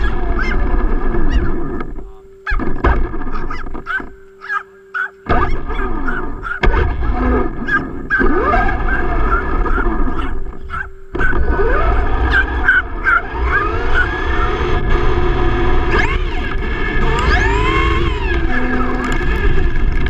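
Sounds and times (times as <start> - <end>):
small dog barking: 0.0 - 0.7, 3.3 - 6.7, 7.6 - 14.7
electric motor whine: 0.0 - 20.0
tyre and chassis rumble: 5.2 - 20.0.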